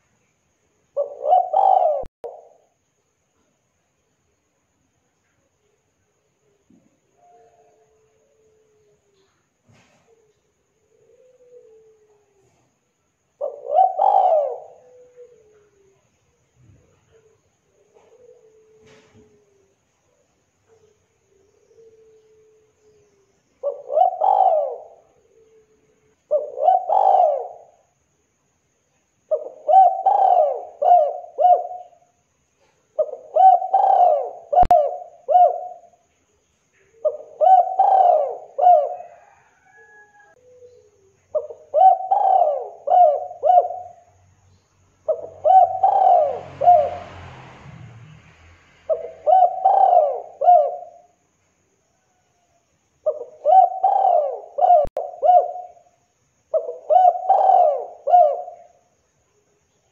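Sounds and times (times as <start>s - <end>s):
dove cooing: 1.0s - 2.8s, 7.2s - 12.7s, 13.4s - 19.8s, 20.7s - 27.8s, 29.3s - 36.1s, 36.8s - 44.2s, 45.1s - 47.1s, 48.9s - 51.2s, 53.0s - 55.9s, 56.5s - 58.8s
brief rustle: 9.7s - 10.2s.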